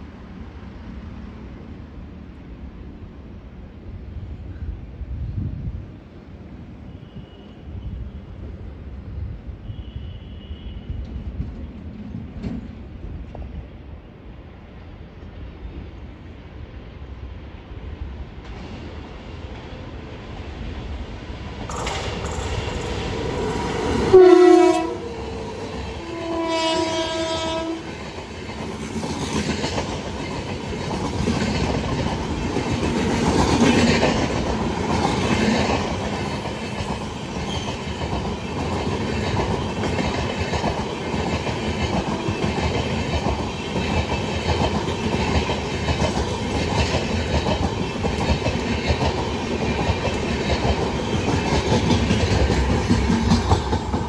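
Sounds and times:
locomotive horn blasts: 9.7 - 11.0, 24.1 - 25.2, 26.0 - 27.9.

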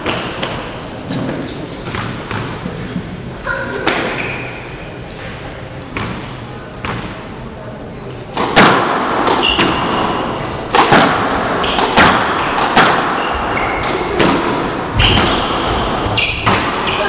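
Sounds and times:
squash ball hitting racket and wall: 0.0 - 3.0, 3.8 - 4.5, 5.9 - 7.3, 8.3 - 17.0
shoes squeaking on wooden floor: 3.9 - 4.7, 9.4 - 10.9, 11.6 - 17.0.

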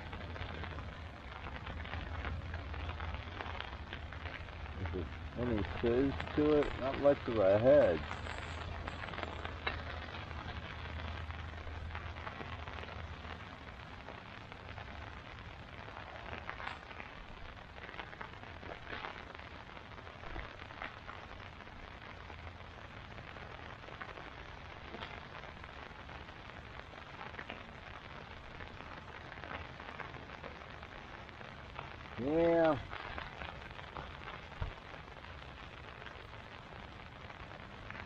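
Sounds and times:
rain falling on a tarp: 0.0 - 38.0.

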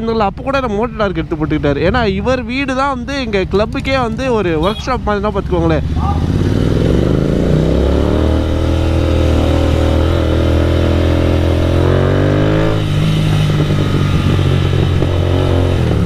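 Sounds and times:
road and wind noise: 0.0 - 16.0
motorcycle engine under throttle: 4.7 - 16.0.

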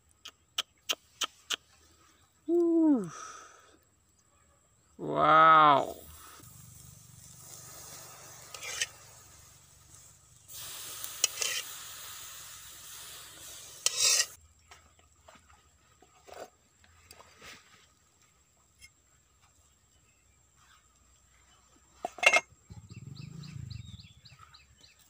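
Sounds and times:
fish sizzling on a grill: 6.0 - 14.4
metal tongs scraping grill rack: 8.3 - 9.1, 11.1 - 11.7, 13.8 - 14.4, 22.0 - 22.5.

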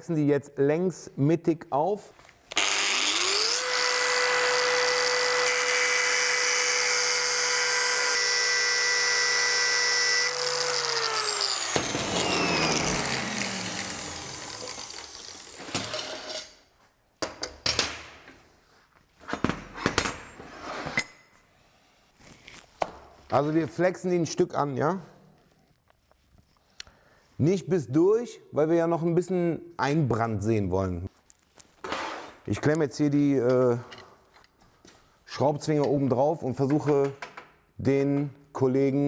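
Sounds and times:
angle grinder cutting steel: 2.5 - 16.6.

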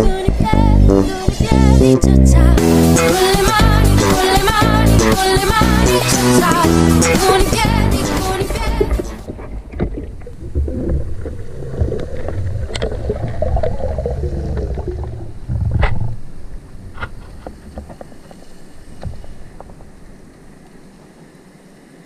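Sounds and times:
sharp underwater clicks: 5.4 - 20.8
muffled underwater water rumble: 7.4 - 21.4.

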